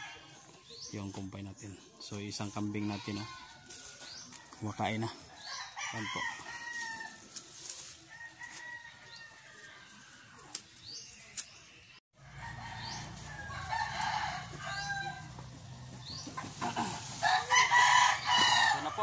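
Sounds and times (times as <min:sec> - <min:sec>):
distant rooster crowing: 0:12.2 - 0:19.0
hens clucking: 0:15.2 - 0:19.0.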